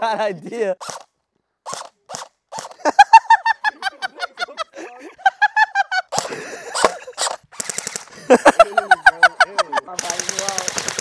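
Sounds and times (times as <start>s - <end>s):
airsoft rifle firing bursts: 0.8s - 2.8s, 6.1s - 8.1s, 9.9s - 11.0s.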